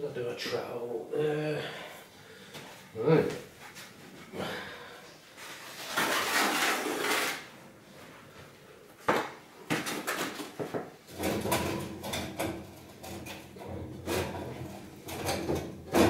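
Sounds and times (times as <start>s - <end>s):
trowel scraping plastic bucket: 5.5s - 7.5s.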